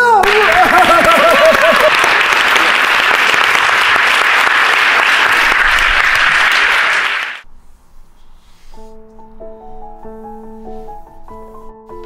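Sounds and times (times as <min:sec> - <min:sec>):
audience applauding: 0:00.2 - 0:07.4.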